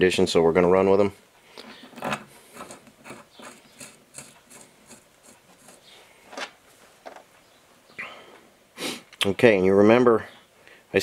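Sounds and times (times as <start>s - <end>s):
metallic clicks and scraping of bolts: 1.6s - 5.9s.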